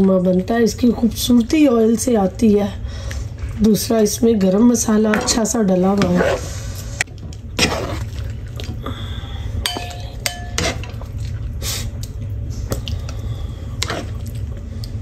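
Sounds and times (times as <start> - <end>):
low steady hum: 0.0 - 15.0
plastic spoon scraping a wok: 5.1 - 8.2.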